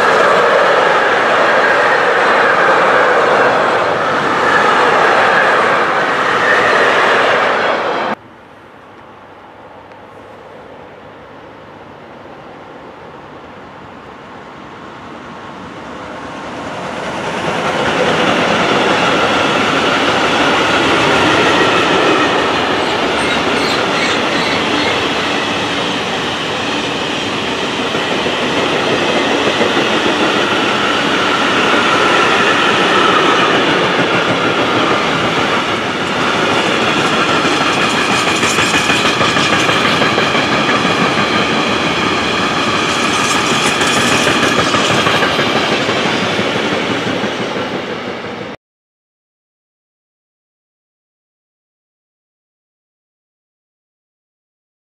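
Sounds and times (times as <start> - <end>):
freight train wheels rolling: 15.5 - 48.5.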